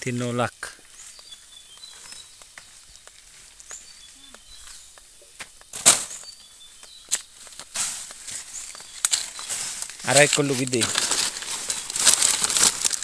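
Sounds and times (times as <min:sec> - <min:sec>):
high bird chirps: 0:00.8 - 0:07.5, 0:08.2 - 0:10.6
dry leaves crackling and rustling: 0:06.9 - 0:13.0
loud crunch: 0:06.9 - 0:13.0.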